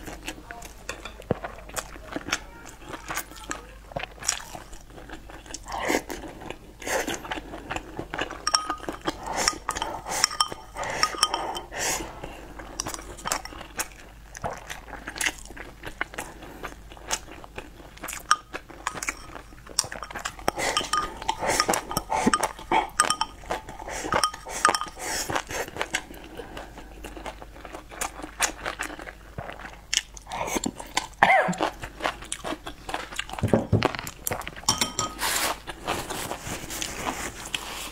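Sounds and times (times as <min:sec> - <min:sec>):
wet chewing and slurping: 0:00.0 - 0:37.9
chopsticks clicking on ceramic bowl: 0:08.5 - 0:11.7, 0:18.2 - 0:25.0.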